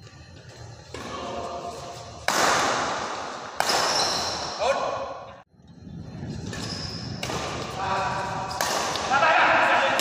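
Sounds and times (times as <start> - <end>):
racket hitting shuttlecock: 2.2 - 4.6, 6.5 - 7.8, 8.4 - 9.2.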